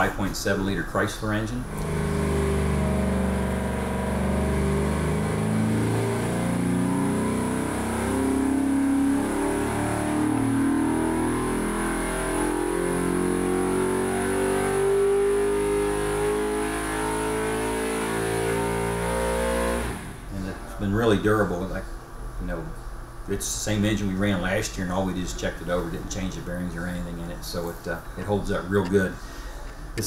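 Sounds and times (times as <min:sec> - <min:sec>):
engine revving on dynamometer: 0:01.6 - 0:20.4.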